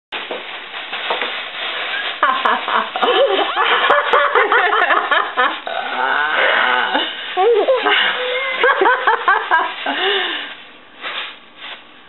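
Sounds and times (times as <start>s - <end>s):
plastic bag crinkling: 0.2s - 4.5s.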